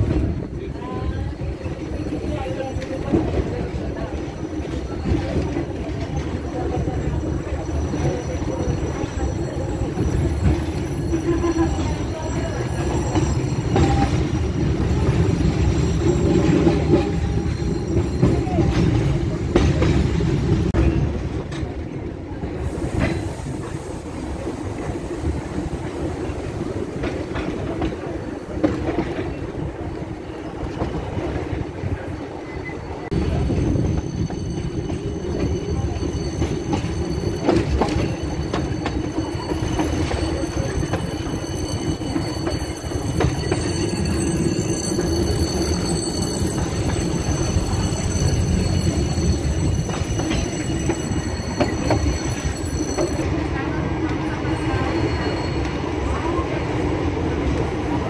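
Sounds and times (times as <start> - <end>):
train wheels rumbling on rails: 0.0 - 58.0
high wheel squeal: 32.3 - 53.3.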